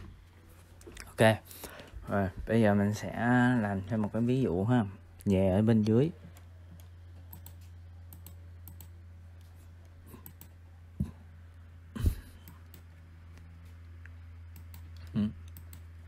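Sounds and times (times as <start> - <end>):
low electrical hum: 0.0 - 16.0
computer mouse clicks: 5.8 - 9.5, 10.1 - 10.6, 12.4 - 16.0.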